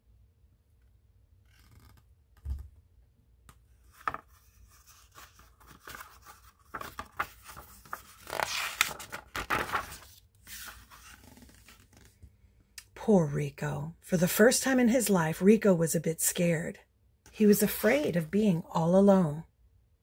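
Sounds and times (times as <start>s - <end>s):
paper pages rustling: 3.8s - 12.4s.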